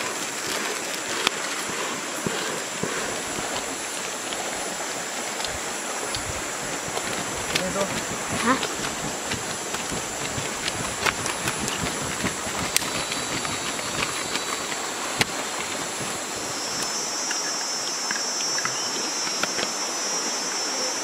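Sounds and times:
high insect drone: 0.0s - 21.0s
lower insect buzz: 0.0s - 21.0s
stream rushing: 0.0s - 21.0s.

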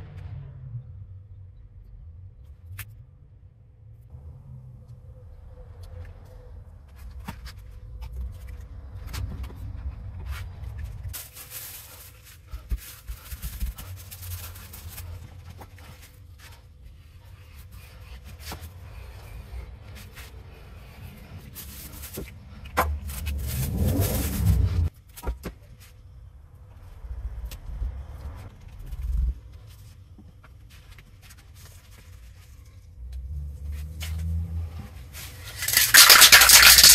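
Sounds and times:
low rumble: 18.9s - 24.9s
cling film crinkling: 35.3s - 36.9s.

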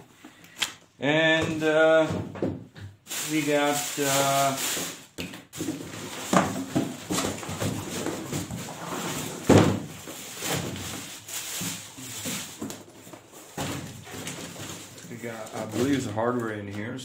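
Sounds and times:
plastic wrap crinkling: 3.1s - 17.0s
cardboard rustling and scraping: 5.6s - 17.0s.

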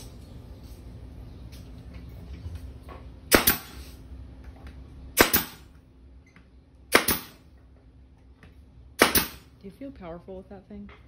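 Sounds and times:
nail gun firing into wood: 3.3s - 3.8s, 5.2s - 5.7s, 6.9s - 7.4s, 9.0s - 9.4s.

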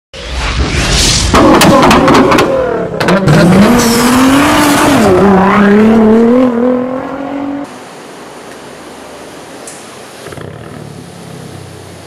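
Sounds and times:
car engine revving: 1.3s - 7.7s.

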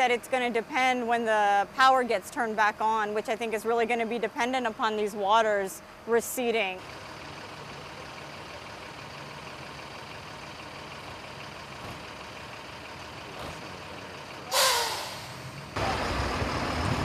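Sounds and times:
truck idling: 0.0s - 17.0s
air-brake hiss with squeal: 14.5s - 15.5s.

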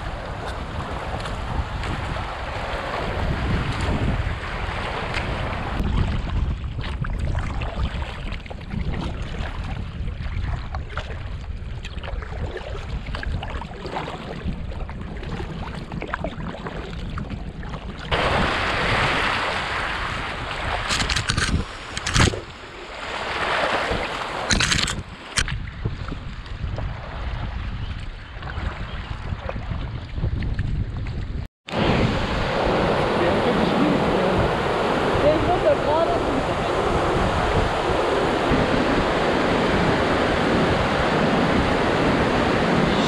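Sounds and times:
wind rumbling on microphone: 0.0s - 43.0s
river water rushing: 31.7s - 43.0s.

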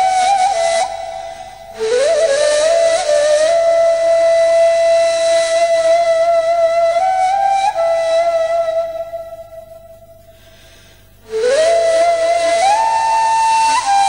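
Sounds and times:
breathy flute note: 0.0s - 4.0s.

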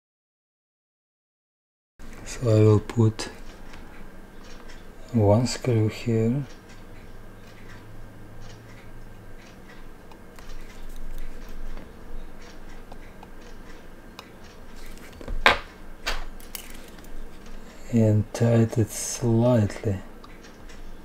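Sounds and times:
tweezers clicking on watch movement: 6.4s - 15.2s.

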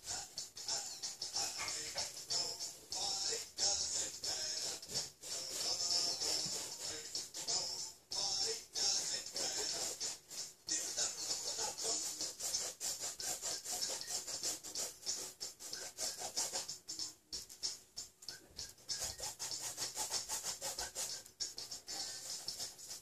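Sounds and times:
paintbrush scrubbing on canvas: 4.6s - 7.5s, 9.0s - 16.7s, 18.8s - 23.0s.

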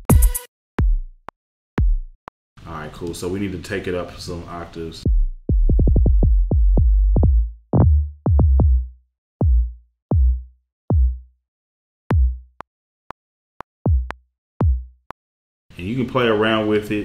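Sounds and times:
deep bass booms: 5.1s - 11.2s.

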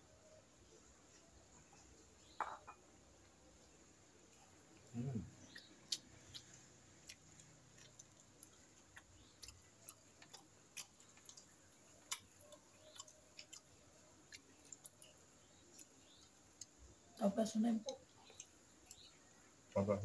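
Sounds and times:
chewing: 4.3s - 16.8s, 17.8s - 19.4s.

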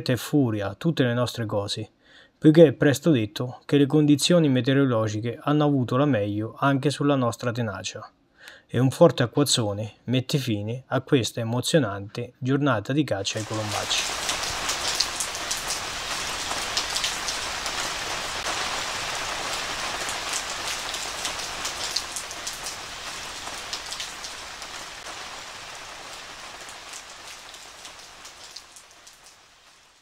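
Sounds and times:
heavy rain on wet leaves: 13.3s - 30.0s.

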